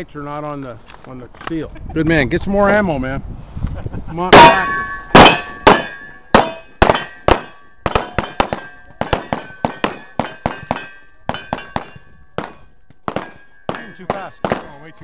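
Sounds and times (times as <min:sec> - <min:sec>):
steel targets ringing: 0:04.3 - 0:14.9
rapid gunshots: 0:05.2 - 0:10.9, 0:11.5 - 0:14.9.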